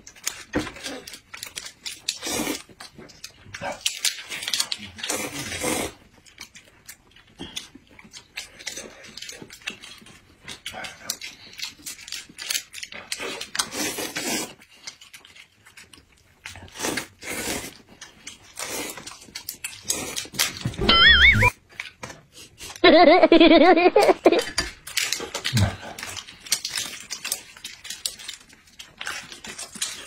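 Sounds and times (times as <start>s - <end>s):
chewing and mouth smacking: 0.1s - 20.7s, 24.4s - 30.0s
noodles slurped: 2.1s - 2.8s, 3.9s - 6.1s, 13.1s - 15.5s, 16.4s - 20.5s.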